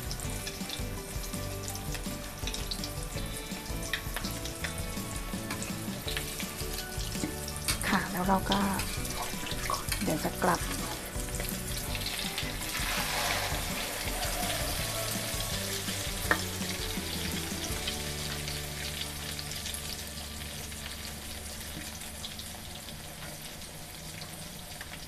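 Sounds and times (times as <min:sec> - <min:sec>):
spatula flipping food: 0:00.0 - 0:20.0
omelette sizzling in oil: 0:00.0 - 0:25.0.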